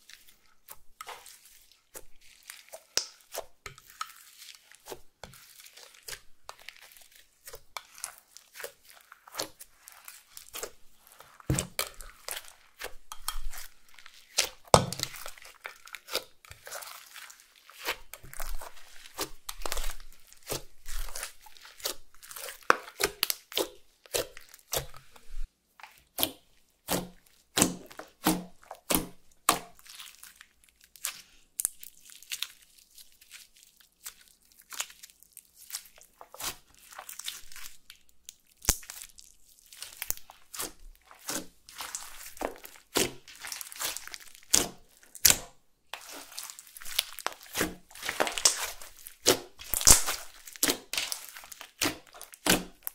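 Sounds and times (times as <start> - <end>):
slime squishing sticky clicks: 42.9 - 52.9.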